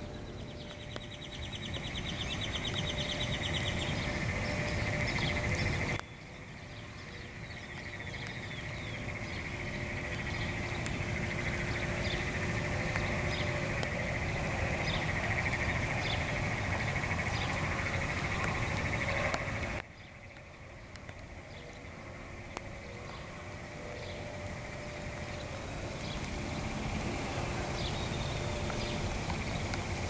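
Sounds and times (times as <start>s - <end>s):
bird chirps: 0.0s - 13.6s
rain falling on a pond: 0.1s - 30.0s.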